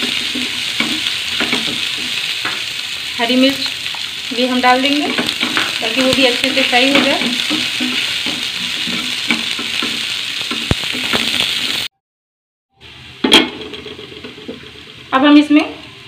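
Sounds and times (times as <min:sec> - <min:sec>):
spatula scraping pan: 0:00.0 - 0:03.0, 0:04.9 - 0:11.9
onion sizzling in oil: 0:00.0 - 0:11.9, 0:12.8 - 0:16.0.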